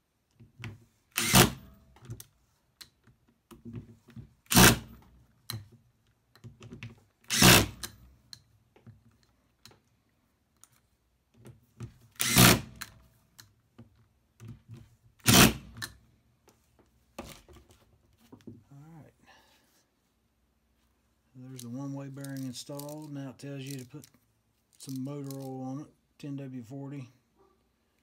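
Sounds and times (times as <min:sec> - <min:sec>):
small metal parts clattering: 0:24.7 - 0:25.6.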